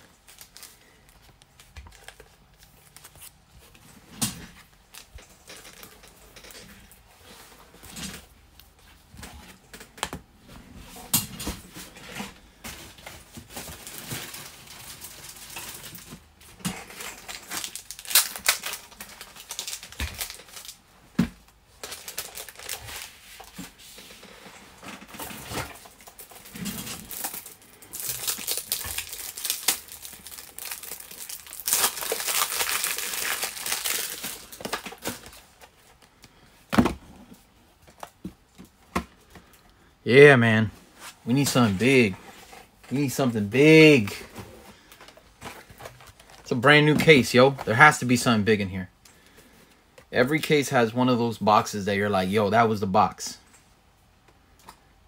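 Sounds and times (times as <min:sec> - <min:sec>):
plastic sleeves crinkling: 0:00.0 - 0:06.6, 0:11.8 - 0:36.4, 0:40.9 - 0:48.4.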